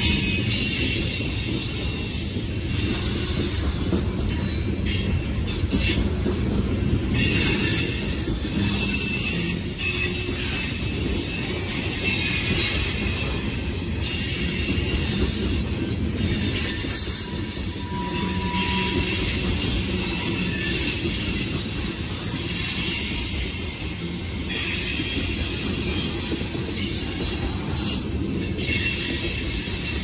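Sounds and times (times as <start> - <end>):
faint high wheel squeal: 0.0 - 6.3, 7.2 - 30.0
train wheels rumbling on rail: 0.0 - 30.0.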